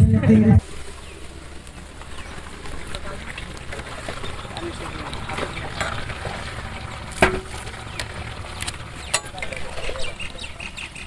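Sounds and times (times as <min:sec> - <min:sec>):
ladles scraping cooking pots: 0:04.0 - 0:07.9.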